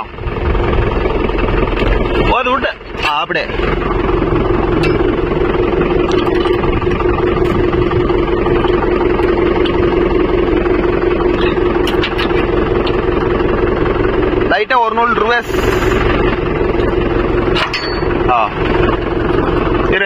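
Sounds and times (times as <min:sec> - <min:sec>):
diesel tractor running: 0:00.0 - 0:20.0.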